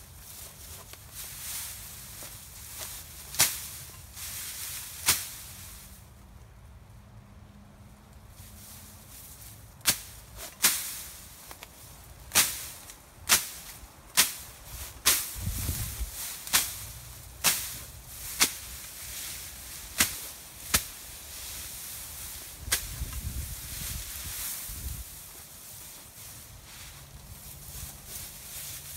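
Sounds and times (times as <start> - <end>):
machete chopping grass stems: 2.8 - 4.0, 4.9 - 5.6, 9.8 - 11.7, 12.3 - 24.8.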